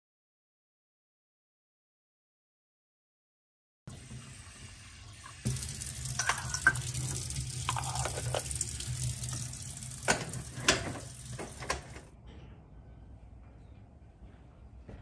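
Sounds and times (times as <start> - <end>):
tap water running into metal pot: 3.9 - 12.0.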